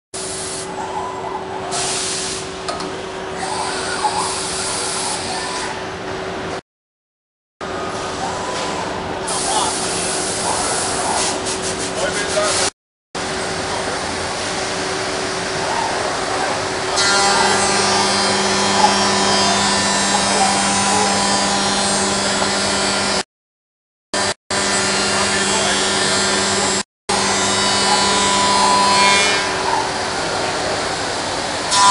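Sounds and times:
hissing bursts: 1.7s - 2.5s
machine hum: 13.2s - 23.2s
machine spindle cutting wood: 16.6s - 23.2s, 24.2s - 30.9s.

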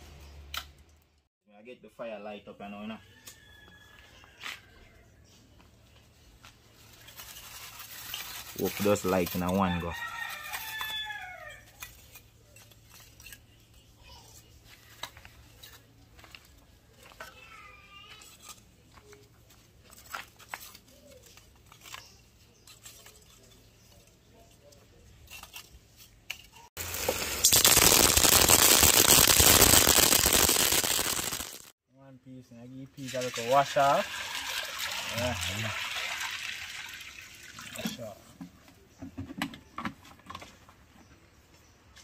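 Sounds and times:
plastic bag rustling: 6.6s - 9.5s, 26.8s - 31.8s
fire crackling: 26.8s - 31.8s.

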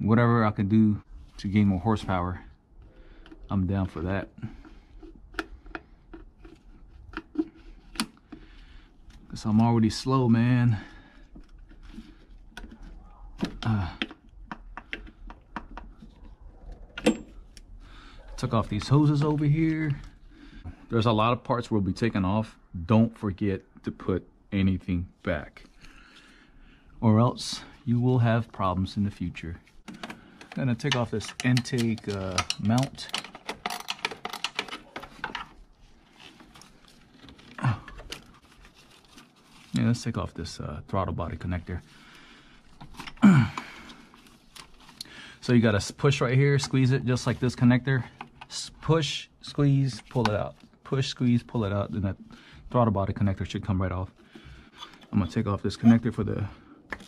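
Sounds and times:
gloved hands clicking on engine parts: 13.4s - 16.1s
plastic and metal parts rattling: 29.8s - 39.8s, 42.7s - 45.0s
person grunting: 43.2s - 43.7s.

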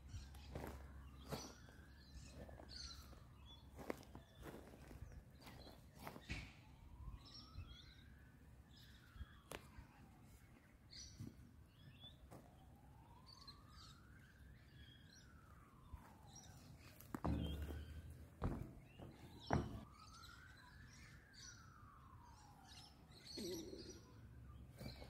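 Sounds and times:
distant siren wailing: 0.0s - 25.0s
faint bird chirps: 19.0s - 25.0s.

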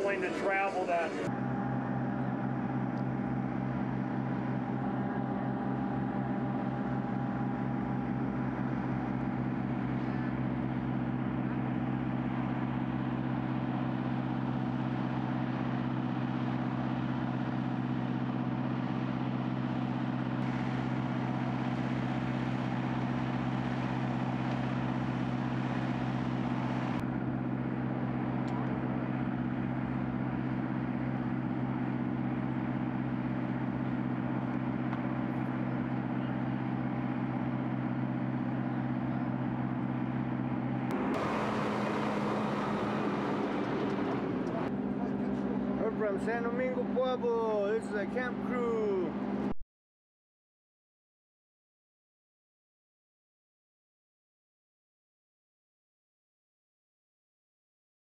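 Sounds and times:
loud rough noise: 0.0s - 49.0s
motor humming steadily: 0.0s - 49.6s.

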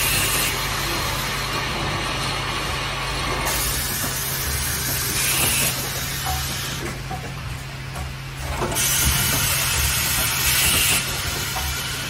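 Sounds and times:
machine hissing: 0.0s - 7.2s, 8.4s - 12.0s
machine humming: 0.0s - 12.0s.

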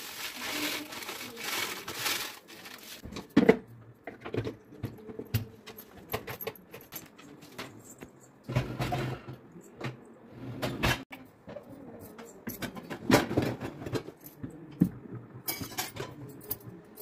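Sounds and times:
dishes clinking in dishwasher racks: 8.5s - 17.0s.

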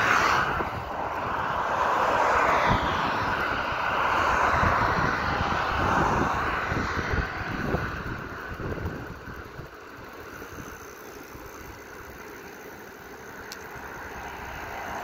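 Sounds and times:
vehicle passing: 0.0s - 9.2s, 13.7s - 15.0s
wind buffeting microphone: 0.0s - 10.9s.

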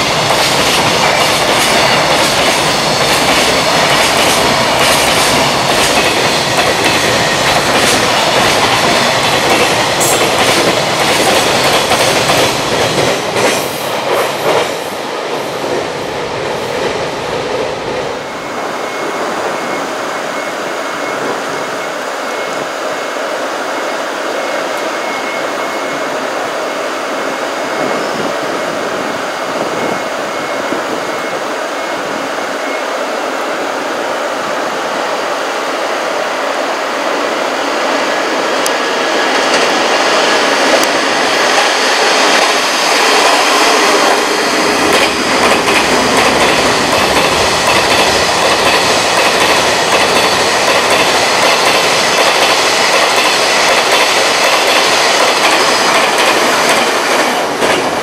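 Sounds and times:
freight train wheels clattering: 0.0s - 18.0s, 38.6s - 58.0s.

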